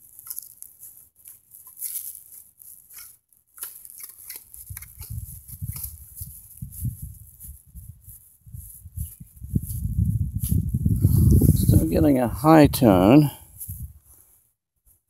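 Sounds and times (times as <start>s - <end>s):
plastic bag rustling and scraping: 0.0s - 11.8s.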